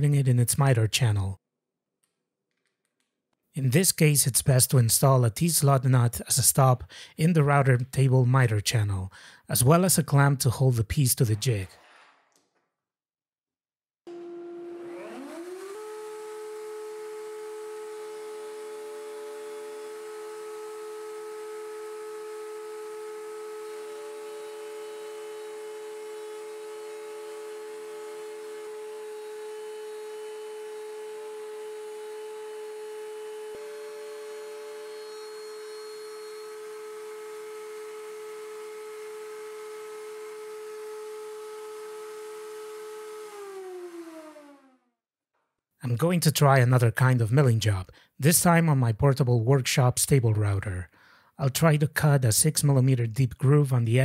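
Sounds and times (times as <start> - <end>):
router motor whining: 14.1 - 44.8.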